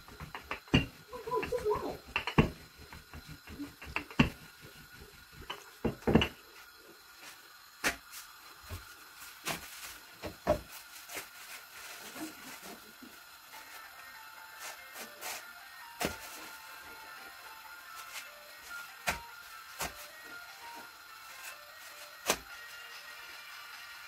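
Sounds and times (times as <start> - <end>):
rolling pin knocking on board: 0.0 - 4.6, 5.4 - 6.4
flatbread pressed in pan: 0.0 - 6.4.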